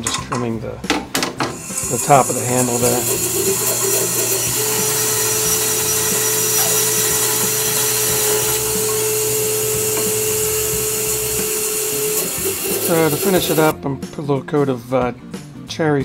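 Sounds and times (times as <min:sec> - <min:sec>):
band saw cutting wood: 0:01.5 - 0:13.7.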